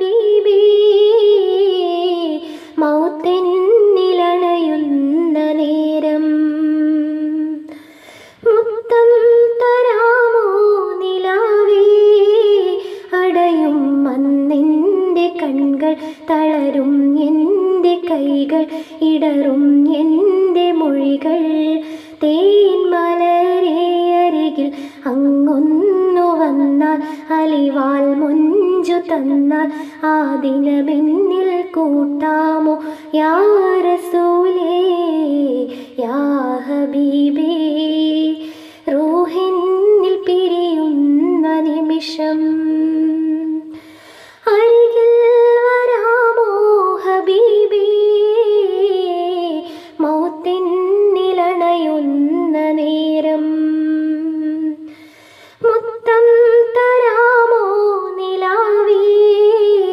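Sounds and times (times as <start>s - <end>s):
woman singing unaccompanied: 0.0s - 7.7s, 8.4s - 43.8s, 44.4s - 54.9s, 55.6s - 59.9s.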